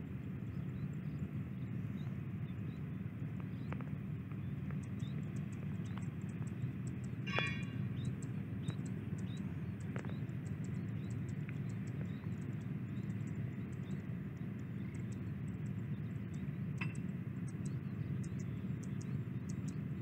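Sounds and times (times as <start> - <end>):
machinery low rumble: 0.0 - 20.0
short metallic ring: 7.3 - 7.7.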